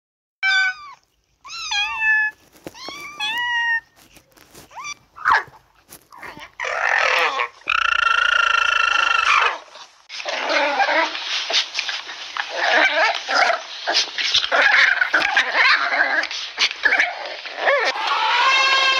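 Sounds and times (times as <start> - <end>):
kittens meowing: 0.4 - 5.3, 17.9 - 18.9
puppies growling and yipping: 4.5 - 18.9
alpaca high call: 17.9 - 18.9.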